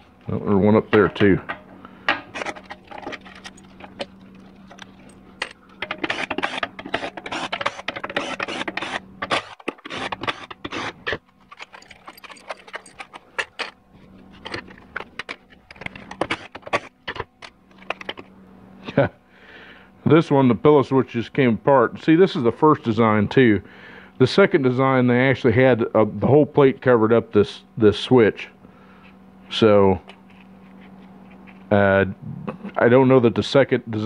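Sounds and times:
metal clinks and scrapes: 2.4 - 8.5, 11.4 - 15.0.

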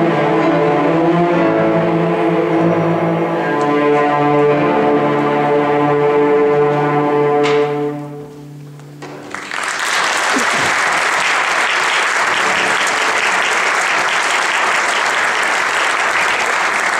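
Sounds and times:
cello ensemble chord: 0.0 - 8.7, 12.0 - 16.9
audience applauding: 9.2 - 16.9.

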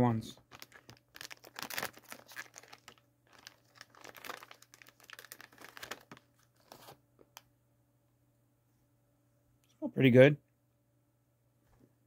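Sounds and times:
plastic snack pouch crinkling: 0.4 - 7.4.

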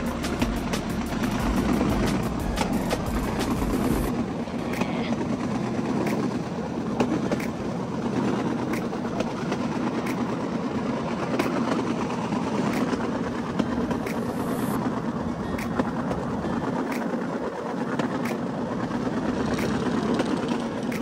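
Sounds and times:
small engine droning: 0.0 - 9.3
wheels clicking over rail joints: 0.0 - 21.0.

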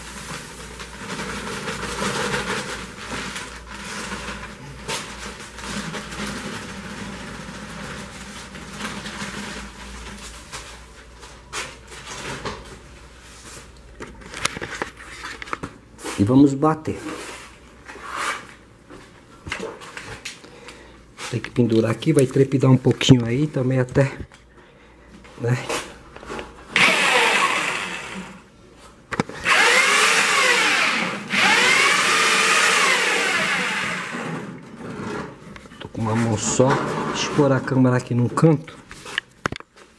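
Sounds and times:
knocks and rustles of movement: 0.0 - 16.3
electric drill mixing adhesive: 26.7 - 28.5, 29.3 - 34.6.

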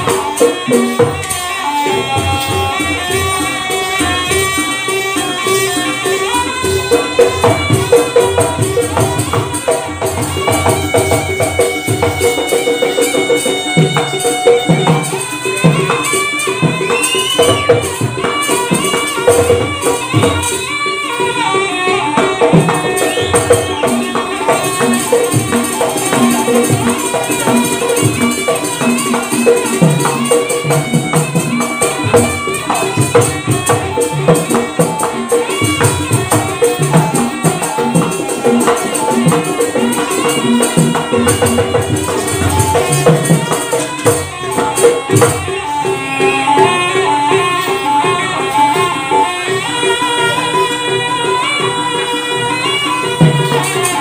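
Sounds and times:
drum strokes: 0.0 - 54.0
jingling rattling percussion: 0.0 - 54.0
reedy shawm melody: 0.0 - 54.0.

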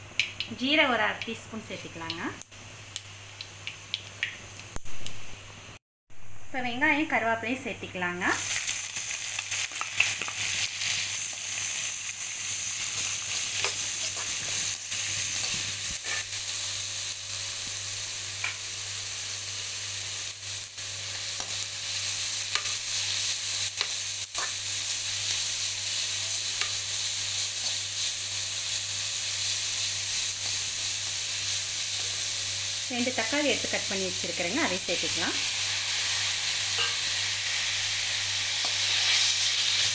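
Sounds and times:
onions sizzling in hot oil: 7.1 - 39.9
spoon scraping a pan: 15.4 - 16.4, 36.6 - 37.2.

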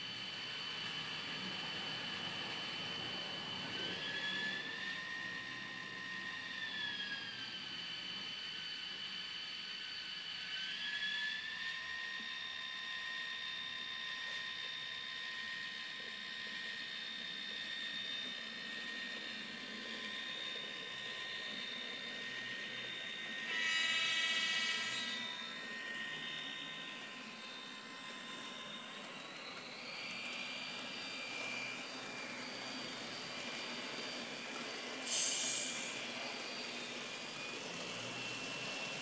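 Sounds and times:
model locomotive diesel engine sound: 0.0 - 39.0
high whine: 24.6 - 39.0.

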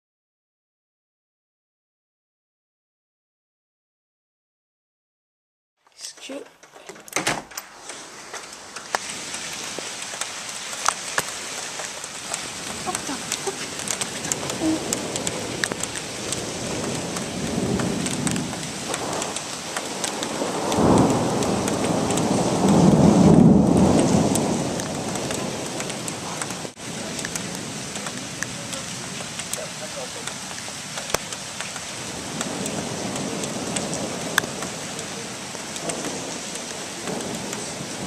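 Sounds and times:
heavy rain falling: 6.0 - 38.0
thunder rumbling: 7.6 - 38.0.

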